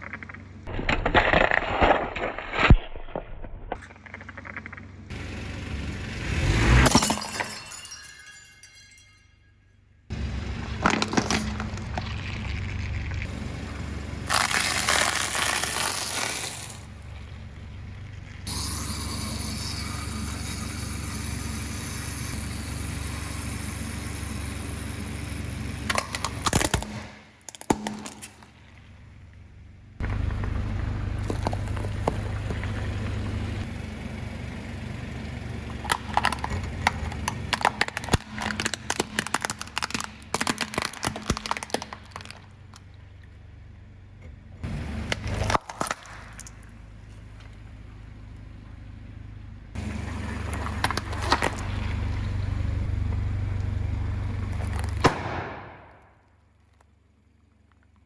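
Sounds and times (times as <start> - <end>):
car engine idling: 0.0 - 0.7, 3.9 - 8.5, 10.0 - 14.5, 16.5 - 58.0
plastic cracking and crunching: 0.7 - 4.5, 14.3 - 16.8, 36.2 - 42.8.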